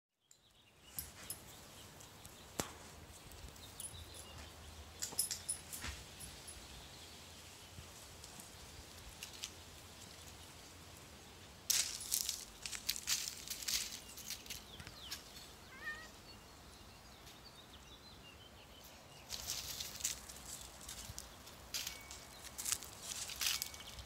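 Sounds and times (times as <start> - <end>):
small clicks and rustles: 8.2 - 10.6, 11.7 - 15.5, 19.3 - 24.0
dry leaves crunching: 11.6 - 16.0, 19.3 - 24.0.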